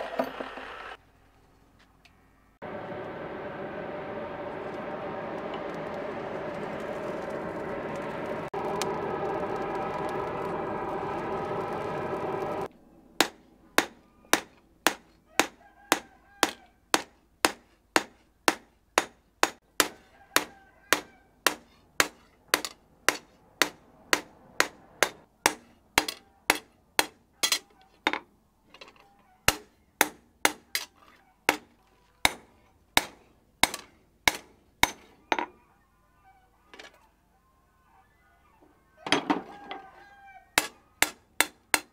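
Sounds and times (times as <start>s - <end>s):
air blower whirring: 2.6s - 12.7s.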